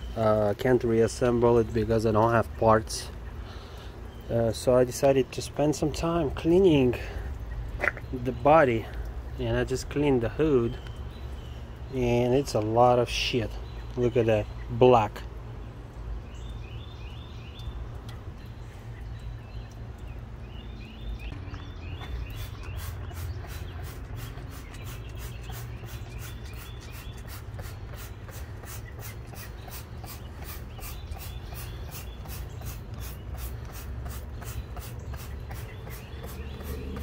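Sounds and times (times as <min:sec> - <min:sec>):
bird singing: 0:00.0 - 0:37.0
trigger sprayer spraying: 0:22.3 - 0:37.0.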